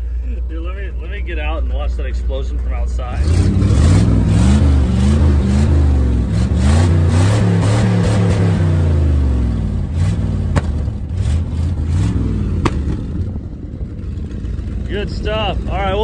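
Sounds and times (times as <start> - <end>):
truck engine revving: 2.9 - 16.0
exhaust backfire pop: 9.9 - 14.8.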